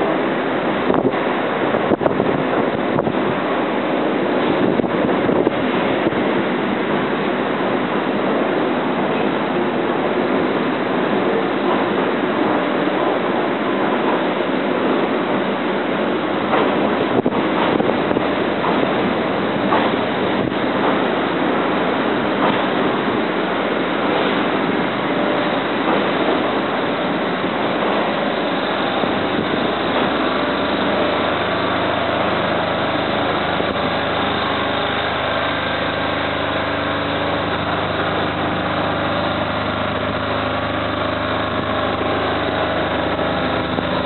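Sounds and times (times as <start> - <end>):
low machine hum: 0.0 - 44.0
wind on microphone: 0.8 - 3.5, 4.4 - 6.4, 27.5 - 36.7.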